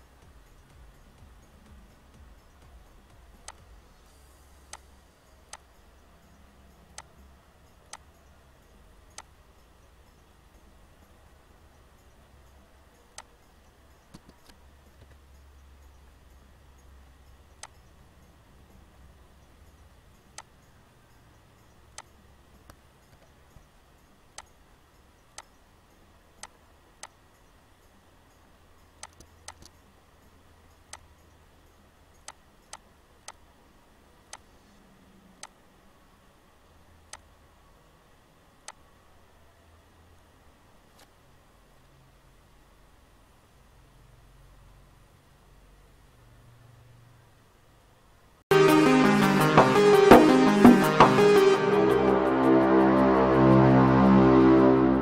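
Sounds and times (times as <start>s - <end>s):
faint low hum: 0.0s - 55.0s
computer mouse clicks: 3.4s - 3.7s, 24.3s - 24.6s, 25.3s - 25.6s, 26.4s - 27.2s, 29.0s - 29.9s, 32.2s - 33.5s, 38.6s - 38.9s
computer mouse and keyboard clicks: 29.0s - 29.8s.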